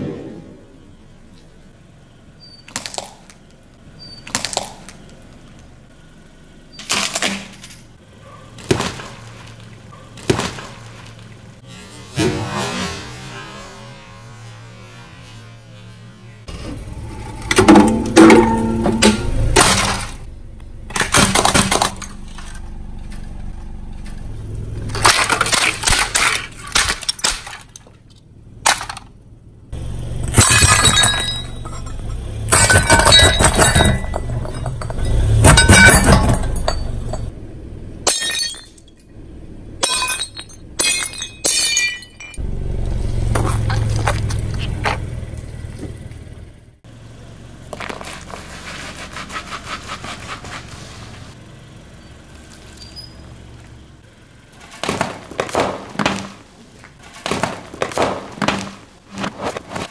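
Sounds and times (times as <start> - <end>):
ceramic cracking and shattering: 38.1 - 38.9, 39.8 - 42.4
tyre crushing objects: 54.6 - 59.9.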